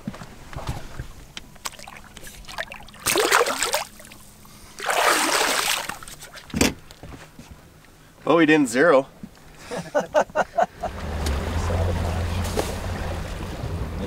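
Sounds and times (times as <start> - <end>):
water splashing: 1.5 - 6.6.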